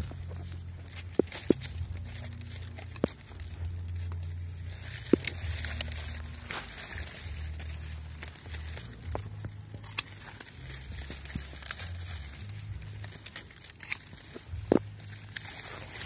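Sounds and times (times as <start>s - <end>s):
stiff leaves rustling: 0.0s - 16.0s.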